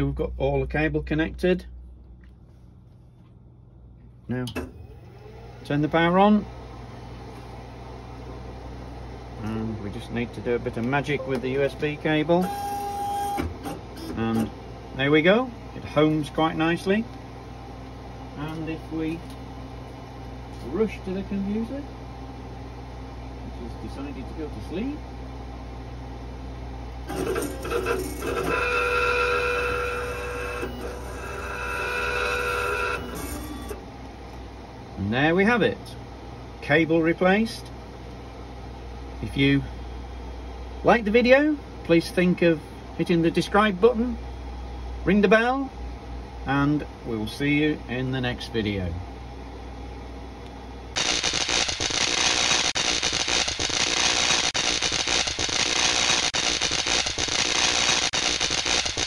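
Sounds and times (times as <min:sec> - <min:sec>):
stepper motors whining: 0:04.6 - 0:05.9, 0:27.1 - 0:33.8
static hiss with crackling: 0:51.0 - 0:59.0.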